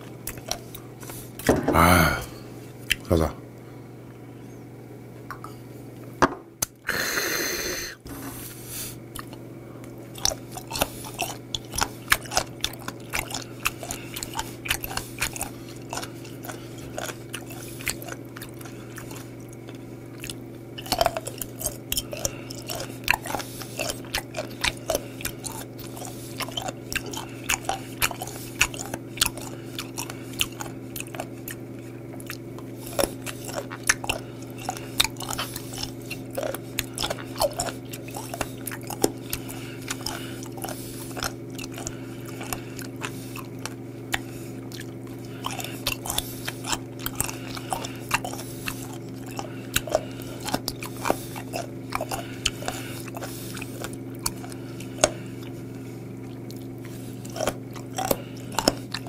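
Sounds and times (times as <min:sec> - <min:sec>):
crunchy chewing: 0:00.0 - 0:03.2, 0:08.4 - 0:59.0
breathy exhale: 0:06.9 - 0:09.0.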